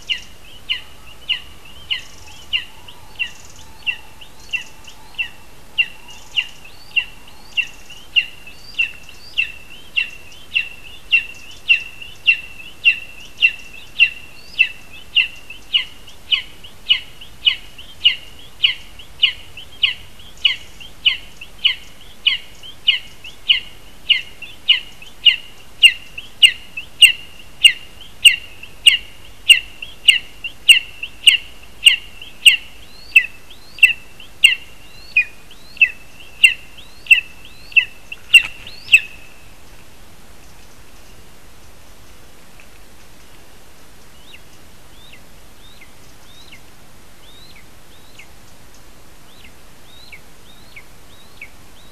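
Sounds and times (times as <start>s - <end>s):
eagle calling: 0.0s - 39.6s.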